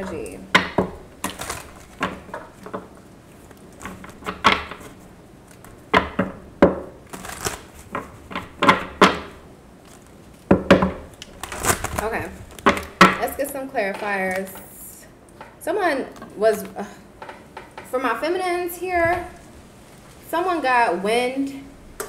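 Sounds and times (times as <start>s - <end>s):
cards being shuffled: 1.2s - 5.8s, 7.0s - 9.0s, 9.8s - 13.0s.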